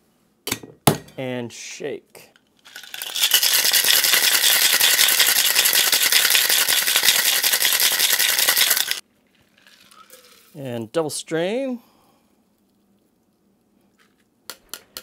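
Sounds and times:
ice rattling in cocktail shaker: 0:02.6 - 0:10.6.

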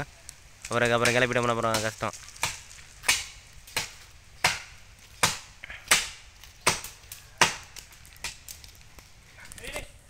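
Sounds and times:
blade chopping wood: 0:01.0 - 0:08.4.

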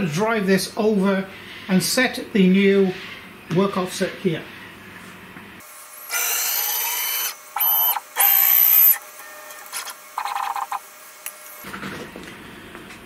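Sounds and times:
cnc router motors whining: 0:06.1 - 0:10.9.

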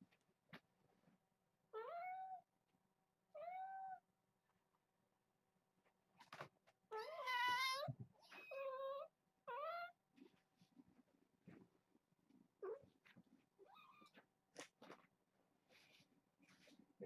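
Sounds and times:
cat meowing: 0:01.8 - 0:02.4, 0:03.4 - 0:04.0, 0:06.9 - 0:10.0.

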